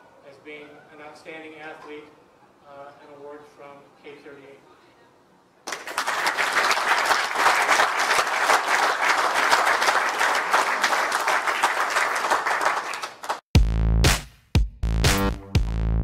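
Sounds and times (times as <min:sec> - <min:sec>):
audience applauding: 0:05.7 - 0:13.4
electronic music with heavy bass: 0:13.6 - 0:16.0.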